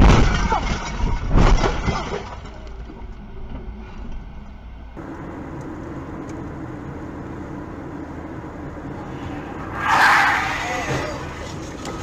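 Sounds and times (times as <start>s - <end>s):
car cabin road noise: 2.4s - 12.0s.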